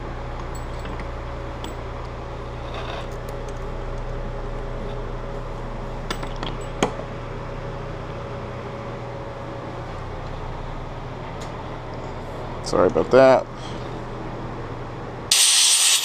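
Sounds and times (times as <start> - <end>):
steady background hum: 0.0 - 16.0
small metal parts and tools clinking: 0.5 - 1.8.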